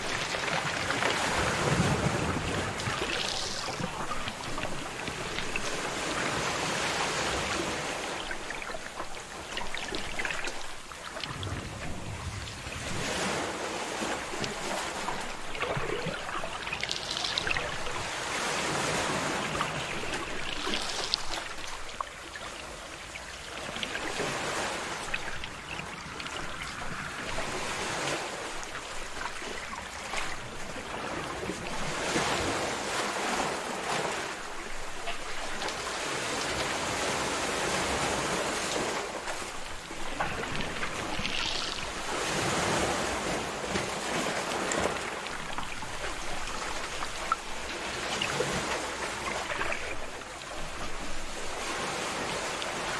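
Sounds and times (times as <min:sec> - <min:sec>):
ocean waves breaking: 0:00.0 - 0:52.9.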